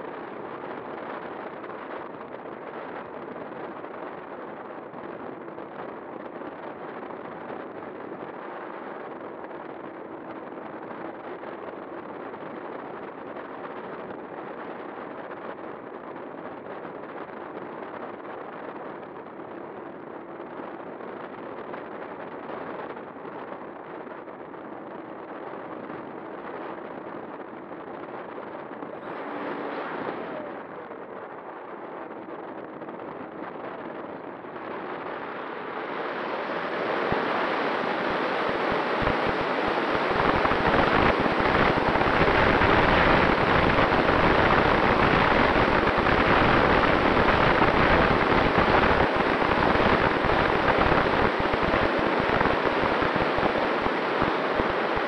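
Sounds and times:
wind rushing over microphone: 0.0 - 55.0
propeller hum: 28.7 - 30.9.

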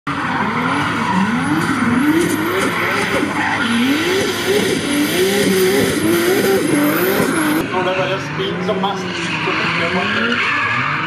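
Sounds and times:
car engine revving: 0.1 - 11.0
tyres skidding and squealing: 0.1 - 11.0.

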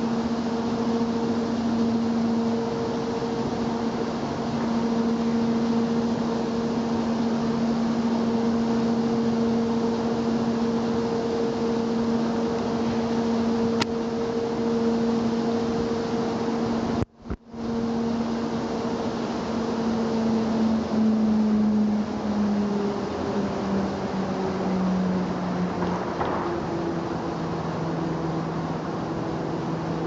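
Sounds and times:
steady mechanical hum: 0.0 - 30.0
rushing noise: 20.9 - 30.0.

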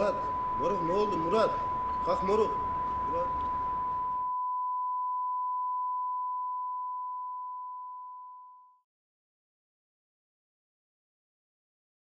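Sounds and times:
high-pitched electronic beep: 0.0 - 5.3.

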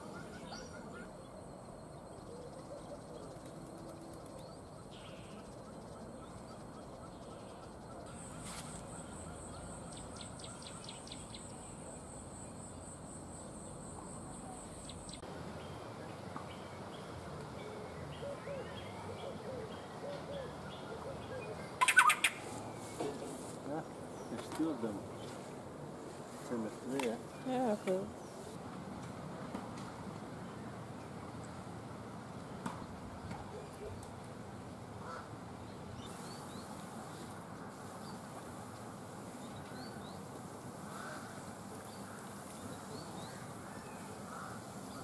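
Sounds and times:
low background hiss: 0.0 - 45.0
faint bird chirps: 17.6 - 23.1.

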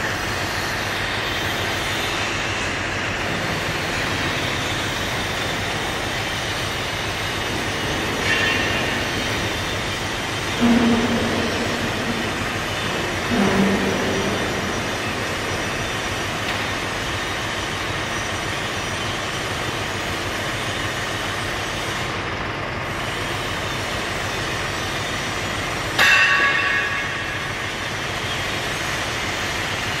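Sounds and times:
sharp metal clang: 10.6 - 15.3, 26.0 - 27.4.

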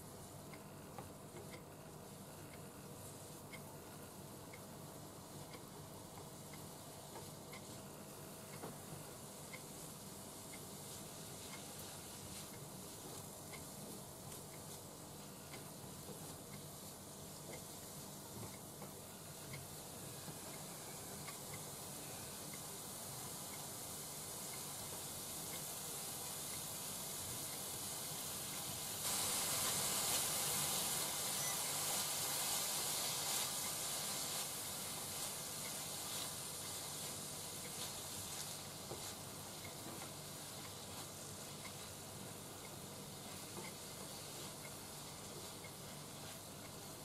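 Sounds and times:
vegetables sizzling in a frying pan: 20.0 - 46.9.

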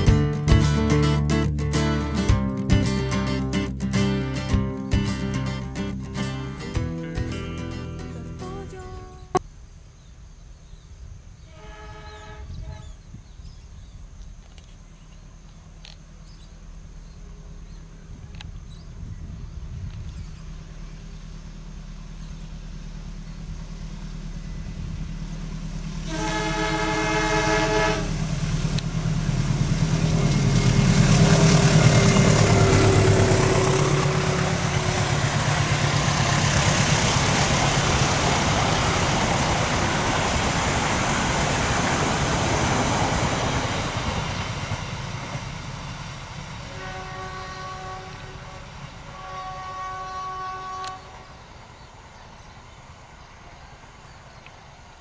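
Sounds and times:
locomotive engine rumble: 0.0 - 55.0
locomotive horn blast: 11.4 - 13.1, 26.0 - 28.3, 30.1 - 36.6, 46.6 - 51.4
faint train horn: 11.4 - 13.2, 26.0 - 28.3, 30.1 - 36.4, 46.6 - 51.9
train wheels rushing on rails: 13.7 - 55.0.

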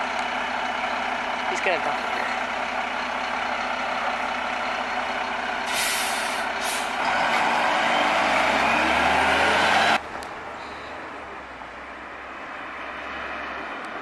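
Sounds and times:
diesel engine humming: 0.0 - 14.0
compressed air hissing: 5.7 - 7.0.

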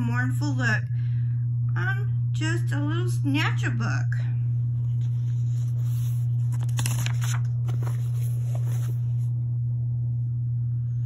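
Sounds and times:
steady low hum: 0.0 - 11.0
paper page rustling: 4.8 - 9.3.

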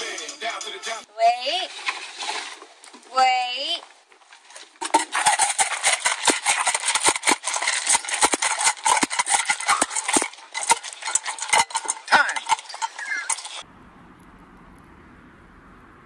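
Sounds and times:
kibble clattering in metal bowl: 4.8 - 13.6.

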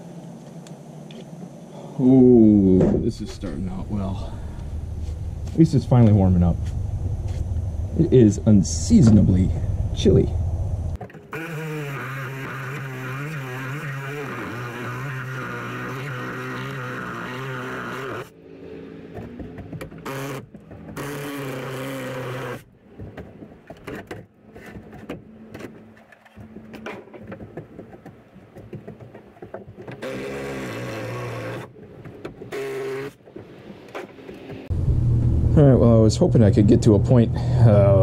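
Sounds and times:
knocks and rattles: 22.9 - 30.1
cordless drill running: 30.0 - 31.7.

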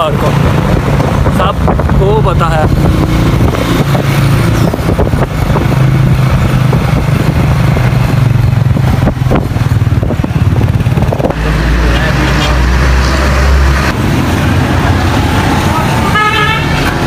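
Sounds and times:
motorcycle engine running: 0.2 - 12.4.

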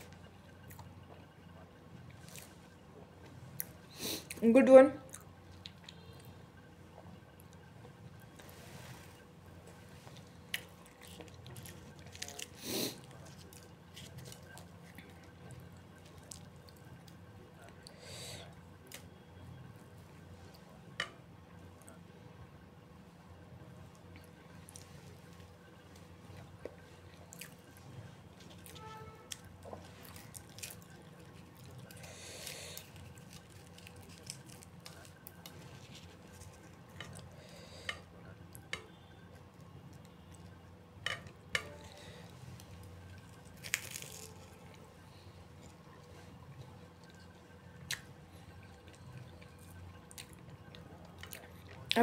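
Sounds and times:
pastry crackling as broken: 10.5 - 17.2, 29.4 - 37.2, 41.9 - 45.0
person chewing: 26.4 - 37.8, 41.6 - 44.8, 45.5 - 52.0
pastry crust crackling: 29.4 - 38.6, 39.4 - 52.0.

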